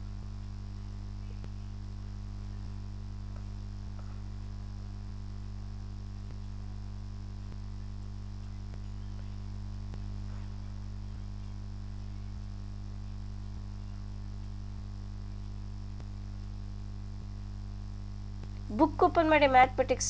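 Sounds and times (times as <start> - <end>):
low electrical mains hum: 0.0 - 20.0.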